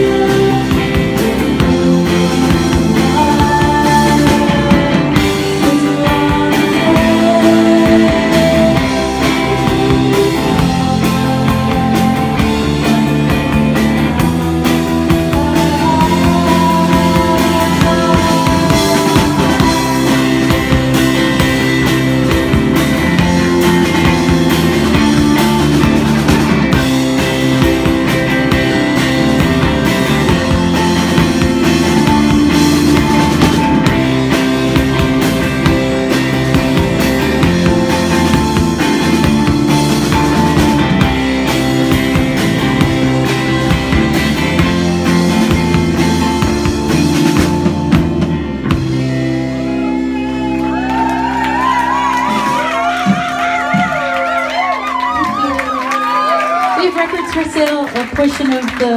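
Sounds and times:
woman singing: 0:00.0 - 0:20.8
electric guitar: 0:00.0 - 0:58.9
pounding drum kit: 0:00.0 - 0:58.9.

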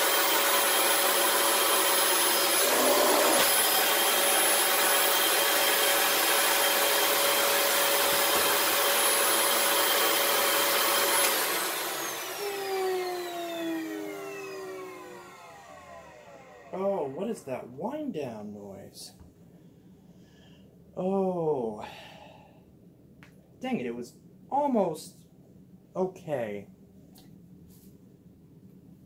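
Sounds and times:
vacuum motor winding down: 0:00.0 - 0:17.3
upright vacuum cleaner running: 0:00.0 - 0:17.4.

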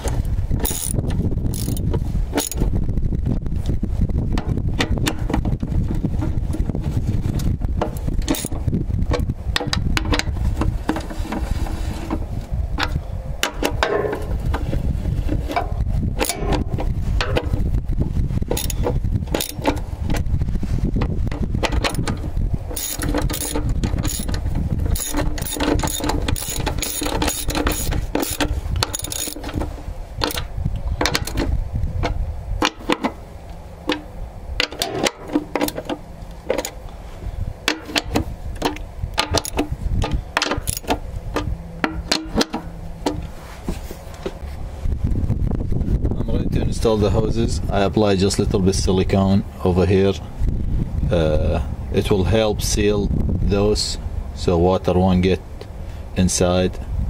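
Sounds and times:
low rumble: 0:00.0 - 0:57.0
socket ratchet clicking: 0:00.6 - 0:02.6, 0:08.2 - 0:08.6, 0:16.2 - 0:17.6, 0:18.5 - 0:19.8, 0:21.3 - 0:29.6, 0:30.2 - 0:33.2, 0:37.7 - 0:43.2.

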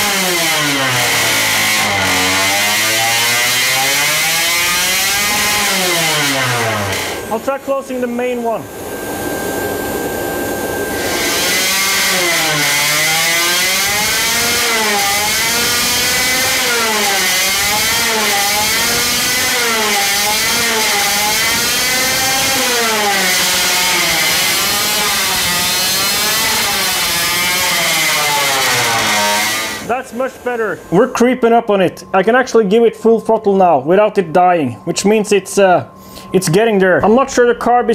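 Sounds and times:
two-stroke engine revving: 0:00.0 - 0:07.2, 0:11.4 - 0:29.9.

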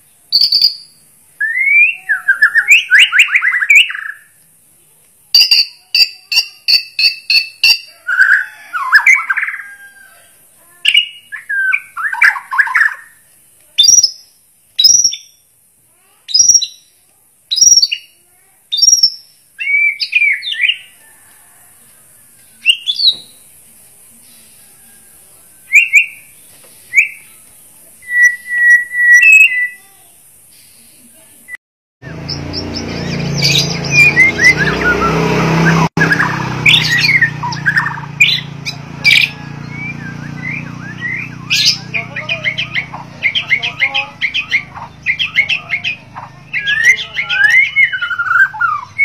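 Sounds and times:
repeated two-tone bird notes: 0:00.0 - 0:04.4, 0:05.4 - 0:09.6, 0:18.8 - 0:20.9, 0:32.0 - 0:49.0
bird singing whistled phrases: 0:00.3 - 0:04.3, 0:05.3 - 0:09.9, 0:10.8 - 0:13.2, 0:13.8 - 0:15.4, 0:16.3 - 0:20.9, 0:22.6 - 0:23.3, 0:25.7 - 0:26.3, 0:26.9 - 0:27.4, 0:28.0 - 0:29.9, 0:32.3 - 0:49.0.

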